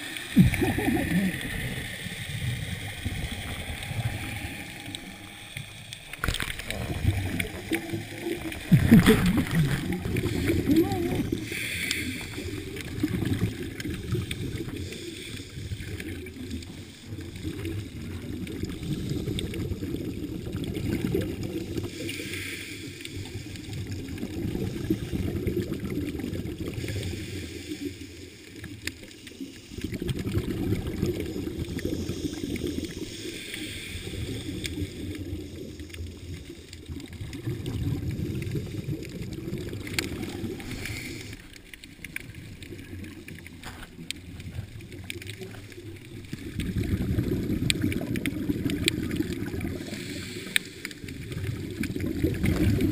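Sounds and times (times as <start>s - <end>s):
underwater bubbles rumbling: 0.0s - 22.1s, 23.0s - 27.7s, 28.3s - 52.9s
regulator hiss: 31.8s - 35.9s.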